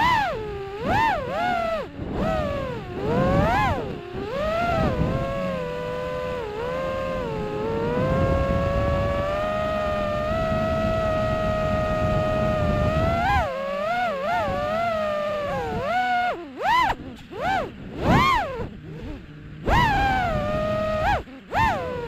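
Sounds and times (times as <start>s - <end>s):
drone motors whining: 0.0s - 22.0s
rushing wind noise: 0.0s - 22.0s.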